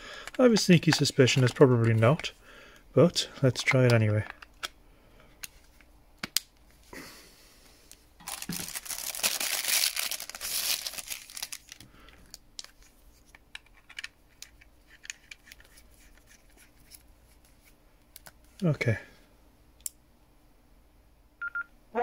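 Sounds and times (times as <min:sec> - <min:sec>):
plastic packaging crinkling: 0:08.2 - 0:13.0.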